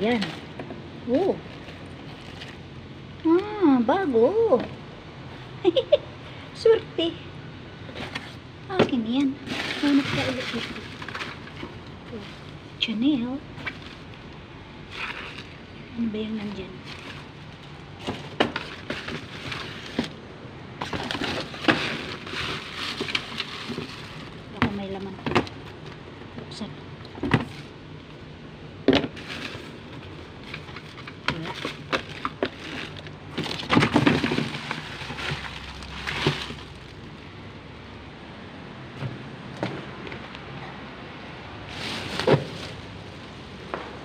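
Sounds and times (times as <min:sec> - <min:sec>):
cardboard and paper rustling: 0:00.0 - 0:02.7, 0:07.8 - 0:15.6, 0:16.3 - 0:20.2, 0:20.8 - 0:26.6, 0:27.2 - 0:27.8, 0:28.9 - 0:37.2, 0:41.7 - 0:43.7
sharp crackles and knocks: 0:00.0 - 0:02.8, 0:07.9 - 0:12.6, 0:16.4 - 0:20.2, 0:20.8 - 0:28.2, 0:28.8 - 0:37.2, 0:41.7 - 0:44.0.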